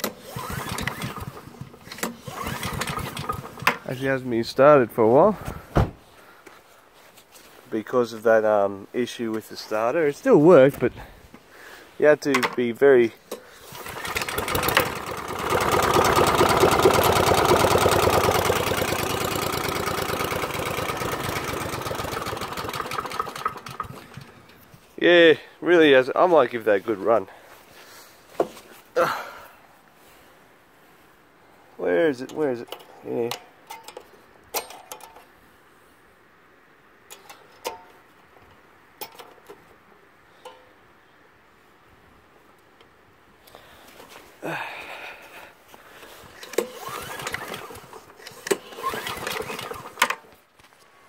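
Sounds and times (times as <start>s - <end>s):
recoil starter pull: 0.0s - 4.0s, 13.3s - 24.7s, 46.3s - 50.3s
lawnmower engine running: 0.0s - 4.2s, 13.6s - 24.8s, 46.3s - 50.3s
light metallic clicks and clinks: 32.2s - 35.3s, 37.1s - 38.0s, 40.4s - 40.8s.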